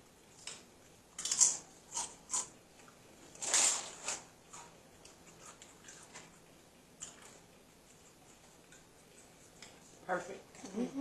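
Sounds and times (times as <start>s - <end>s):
chewing crunchy chips: 1.2s - 9.8s.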